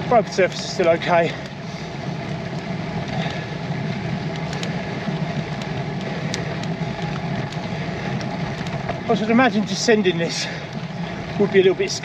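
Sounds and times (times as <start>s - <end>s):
bike rolling on broken tarmac: 0.0s - 12.0s
faint ticks: 1.3s - 9.1s.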